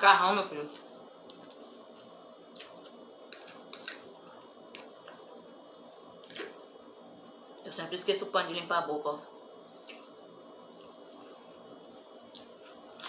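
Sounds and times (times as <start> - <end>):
wet chewing: 0.8 - 6.8
fork scraping a plate: 3.3 - 4.1.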